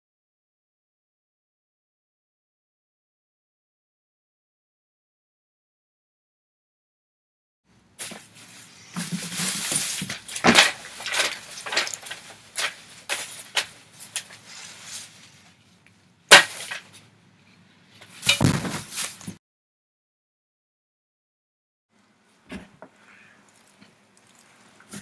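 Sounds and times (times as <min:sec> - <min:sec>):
dry grass rustling and crackling: 0:08.0 - 0:17.0, 0:18.0 - 0:19.4
sharp knock: 0:18.3 - 0:18.8.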